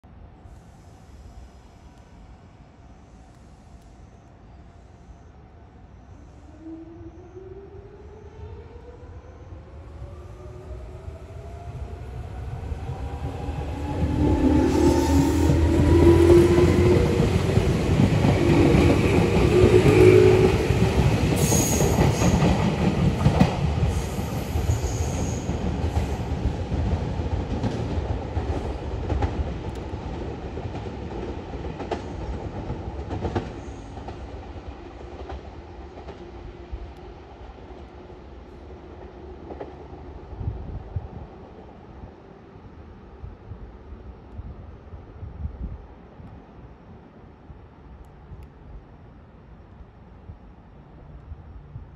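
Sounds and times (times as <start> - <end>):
train cars rushing past: 7.4 - 44.2.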